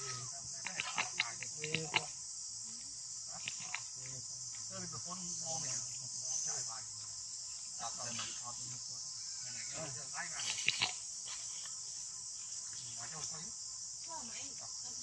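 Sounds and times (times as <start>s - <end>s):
insects chirring: 0.0s - 15.0s
sharp clicks: 0.6s - 2.1s, 3.4s - 3.9s, 10.4s - 11.0s.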